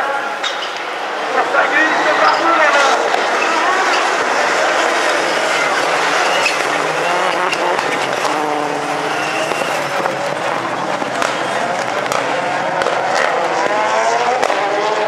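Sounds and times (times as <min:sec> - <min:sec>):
race car engines revving: 0:00.0 - 0:15.0.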